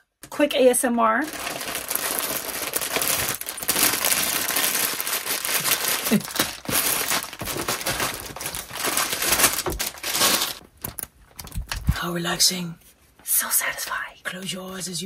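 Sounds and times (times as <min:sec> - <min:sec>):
paper booklets shuffling: 0:01.2 - 0:11.9
plastic bags crinkling: 0:01.2 - 0:11.9.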